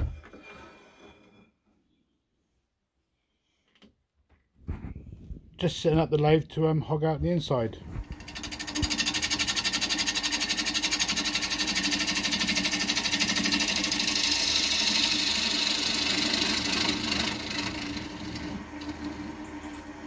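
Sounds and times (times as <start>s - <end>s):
lathe motor hum: 8.1s - 20.0s
gouge hissing cut on wood: 8.7s - 19.4s.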